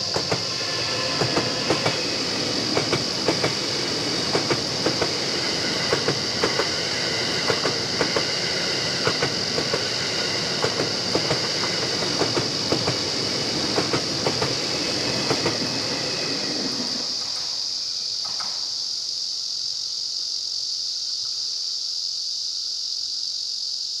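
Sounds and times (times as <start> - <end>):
steady high-pitched drone: 0.0 - 12.2
train rumble: 0.0 - 17.6
train wheels clicking over rail joints: 0.0 - 17.6.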